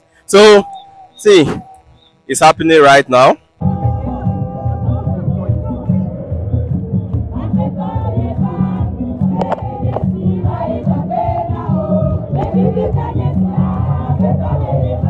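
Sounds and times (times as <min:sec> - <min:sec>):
crowd singing together: 0:03.6 - 0:15.0.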